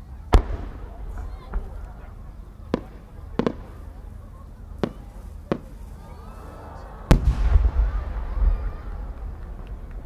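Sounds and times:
firework boom echoing: 0.3s - 1.9s, 2.6s - 3.8s, 7.1s - 9.9s
firework pops: 2.7s - 3.8s, 4.8s - 5.9s.

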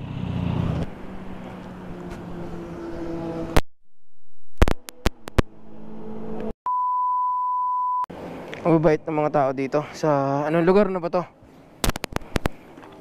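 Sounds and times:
electronic beep tone: 6.7s - 8.1s.

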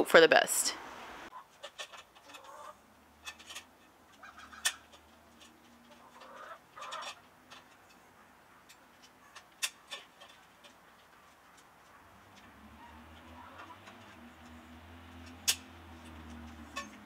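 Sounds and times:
chickens clucking: 1.3s - 14.9s.

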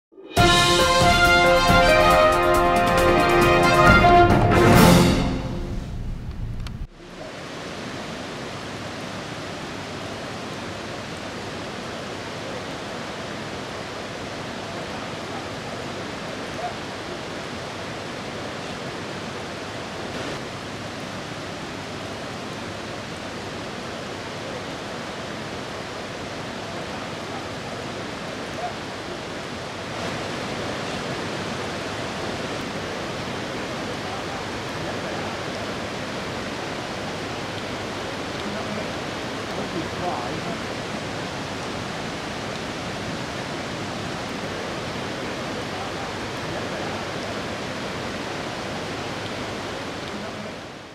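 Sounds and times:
steady rushing hiss: 29.1s - 50.9s.

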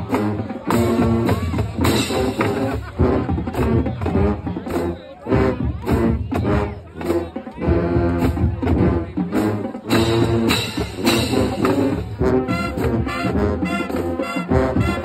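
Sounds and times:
marching band playing: 0.0s - 15.0s
percussion beat: 0.0s - 15.0s.

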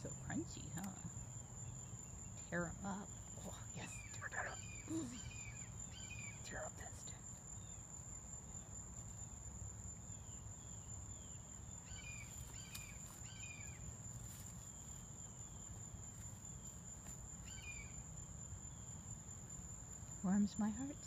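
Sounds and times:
bird chirping: 0.0s - 9.4s, 10.0s - 14.0s, 17.4s - 18.1s.

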